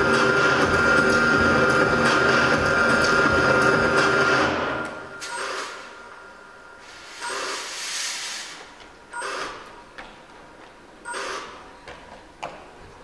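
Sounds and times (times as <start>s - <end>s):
backing music: 0.0s - 5.2s
fog machine hissing blasts: 6.8s - 8.8s.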